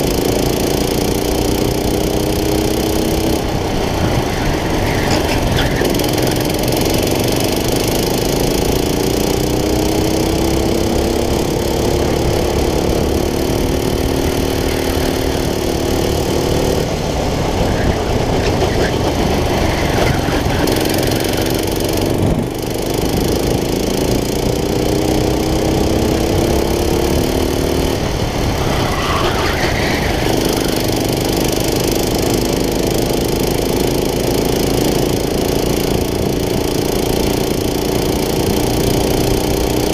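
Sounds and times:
kart engine revving: 0.0s - 39.9s
wind noise: 3.4s - 6.2s, 16.8s - 23.8s.

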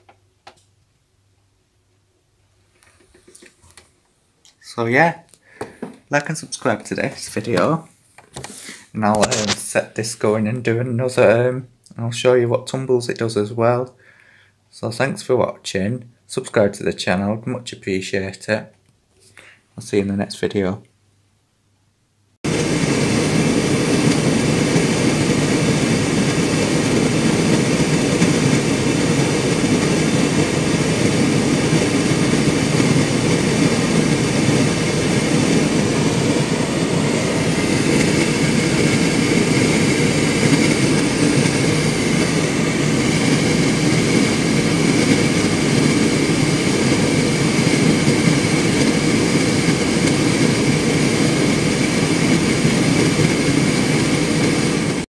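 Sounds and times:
tumble dryer whirring: 22.5s - 55.0s.

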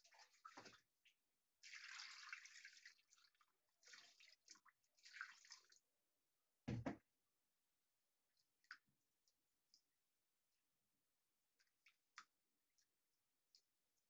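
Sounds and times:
water pouring and splashing: 0.0s - 5.9s.

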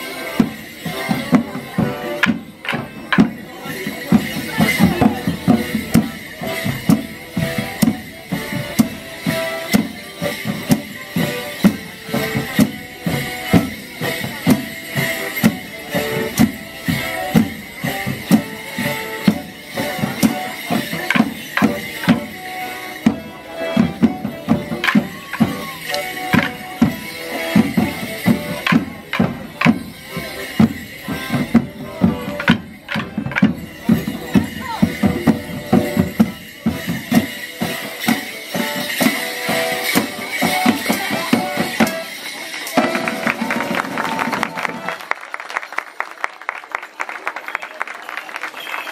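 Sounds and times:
folk dance band: 0.0s - 48.9s
drum beating: 0.2s - 45.0s
wooden sticks clacking together: 24.8s - 26.6s.

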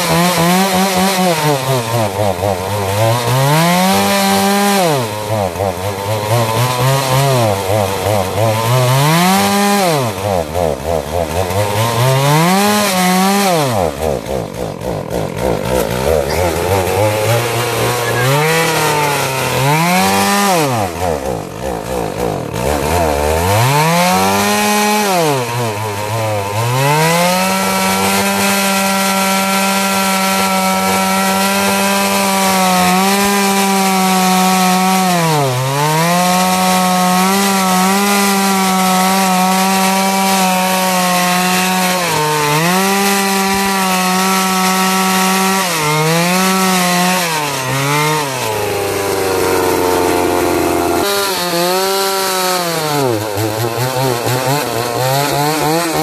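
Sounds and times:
chainsaw revving and cutting wood: 0.0s - 56.0s.

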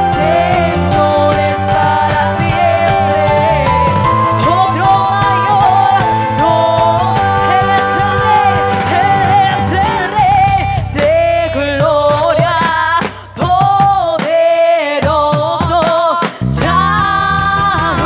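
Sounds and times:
electronic keyboard accompaniment: 0.0s - 13.2s
woman singing into a microphone: 0.0s - 18.0s.

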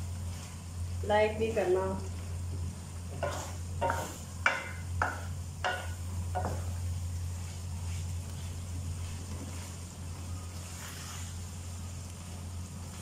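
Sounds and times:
steady low hum: 0.0s - 13.0s
wooden spatula scraping a pan: 3.1s - 11.6s.

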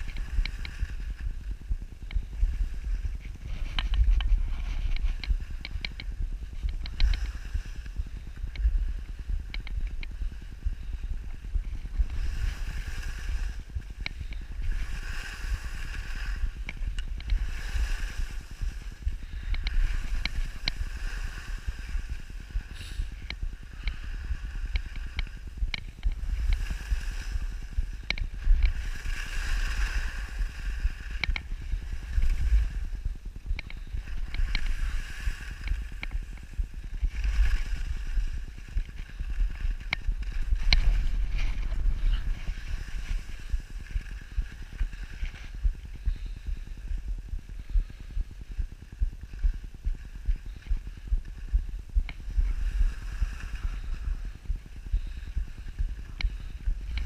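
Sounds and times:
wind buffeting microphone: 0.0s - 57.0s
skis hissing over snow: 17.4s - 23.1s, 28.8s - 31.0s.

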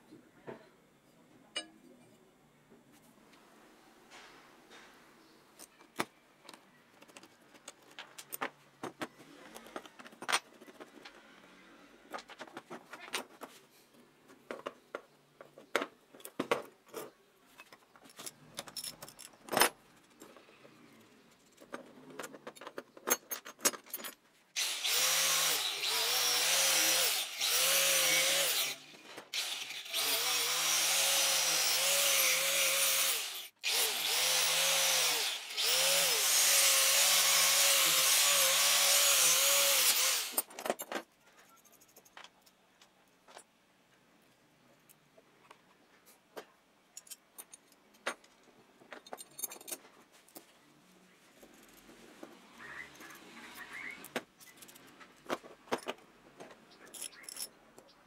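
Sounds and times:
small metal parts clinking: 16.1s - 24.2s, 46.9s - 50.5s, 56.8s - 57.9s
angle grinder on steel: 24.6s - 40.5s.

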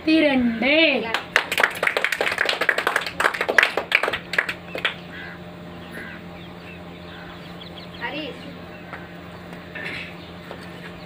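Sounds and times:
children clapping: 1.1s - 5.0s.

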